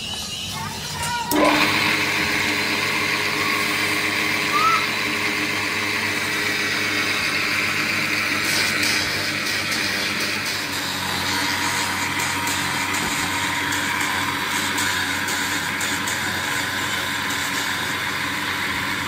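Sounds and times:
grinding wheel motor whine: 0.0s - 19.0s
gear grinding against wheel: 5.4s - 19.0s.

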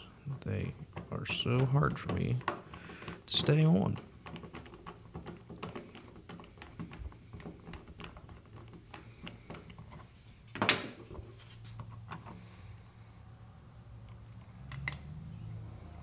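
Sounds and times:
screwdriver clicks and scrapes: 1.0s - 10.2s.

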